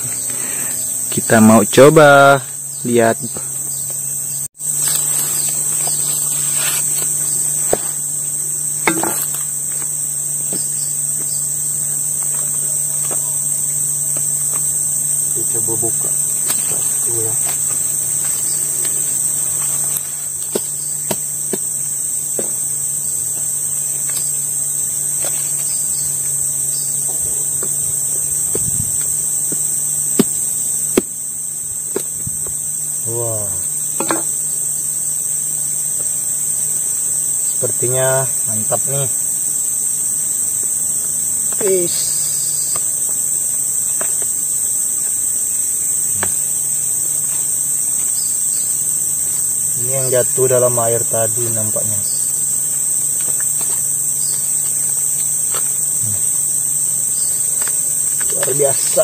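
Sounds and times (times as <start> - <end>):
insects droning: 0.0 - 59.0
machete knocking on fruit husk: 7.6 - 8.0, 8.8 - 9.5, 20.5 - 21.7, 22.3 - 22.6, 29.5 - 31.2, 34.0 - 34.4
fruit husk cracking: 12.1 - 24.4, 27.1 - 31.2, 57.5 - 59.0.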